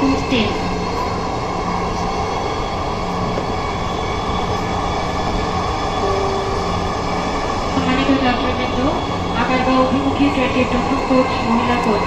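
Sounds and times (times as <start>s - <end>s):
metro train running noise: 0.0s - 12.0s
faint high tones: 6.0s - 7.5s.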